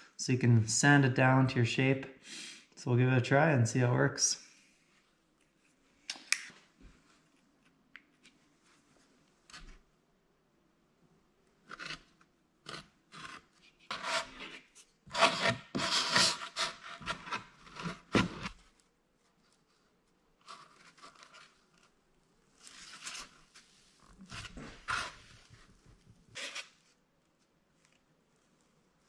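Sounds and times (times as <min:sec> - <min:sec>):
wooden stick scraping foam board: 0:11.6 - 0:18.7, 0:22.6 - 0:26.8.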